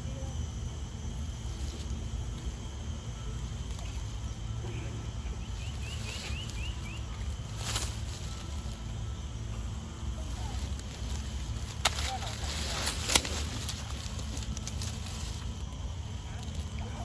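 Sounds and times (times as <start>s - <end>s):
bird chirps: 4.7s - 7.4s.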